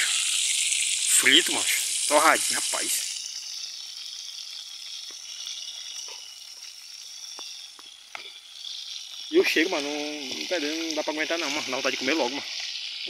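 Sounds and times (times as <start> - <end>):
fish sizzling in hot oil: 0.0 - 13.0
faint ticks: 7.3 - 8.4.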